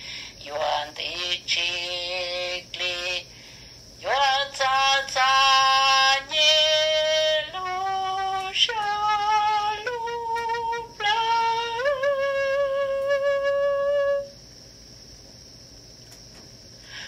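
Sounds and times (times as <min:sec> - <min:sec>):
woman singing: 0:00.4 - 0:03.3, 0:04.0 - 0:14.4.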